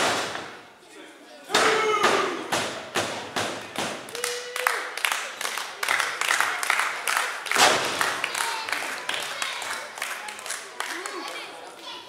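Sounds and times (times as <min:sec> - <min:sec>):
loud sharp smack: 0:00.0 - 0:00.6, 0:01.5 - 0:04.0, 0:07.5 - 0:08.0
crowd calling out: 0:01.5 - 0:02.6
crowd clapping: 0:03.7 - 0:12.0.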